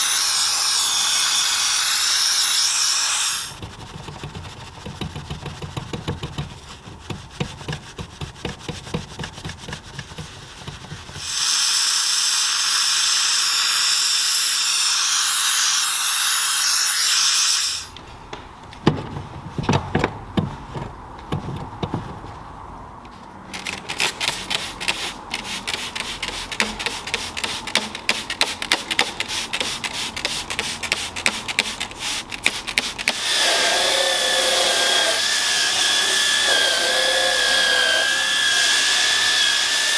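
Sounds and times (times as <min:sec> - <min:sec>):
brush scrubbing carpet: 0:03.6 - 0:11.2, 0:29.1 - 0:33.2
steam cleaner hissing: 0:11.2 - 0:13.9.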